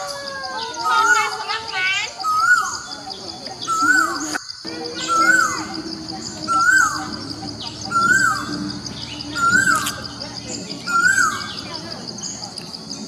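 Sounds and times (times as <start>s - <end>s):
high bird twittering: 0.4s - 13.0s
bird call rising and falling: 3.6s - 11.7s
steady high-pitched hum: 4.6s - 13.0s.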